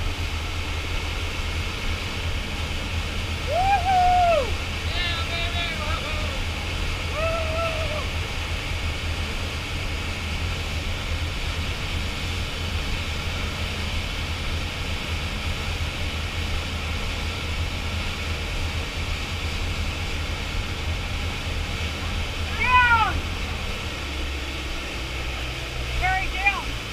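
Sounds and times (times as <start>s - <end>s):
boat engine rumble: 0.0s - 26.9s
churning wake rushing: 0.0s - 26.9s
short high cry: 22.5s - 23.2s.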